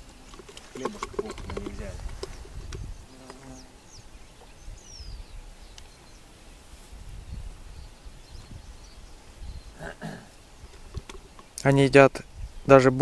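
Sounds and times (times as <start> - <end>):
wind rumble on microphone: 0.8 - 6.1, 6.9 - 9.9, 12.2 - 13.0
flying insect buzzing: 1.2 - 4.2.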